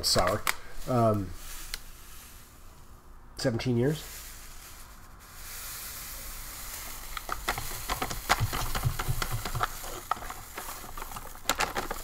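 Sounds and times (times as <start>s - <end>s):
foil pouch crinkling: 4.2s - 12.0s
powder pouring into water: 5.2s - 12.0s.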